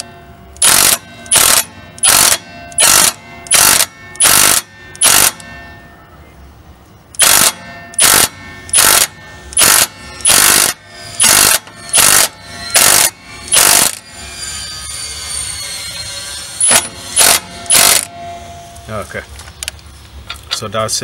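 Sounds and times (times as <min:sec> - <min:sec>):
impact wrench hammering: 0:00.0 - 0:05.5, 0:07.2 - 0:14.1, 0:16.6 - 0:18.4
impact wrench whirring: 0:00.6 - 0:05.4, 0:07.2 - 0:14.4, 0:16.1 - 0:18.2.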